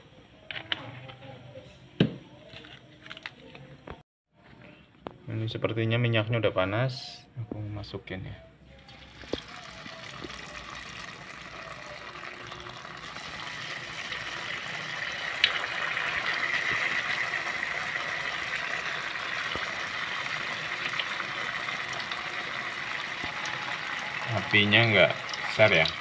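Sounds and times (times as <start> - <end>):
tofu sizzling in hot oil: 8.9 - 26.0.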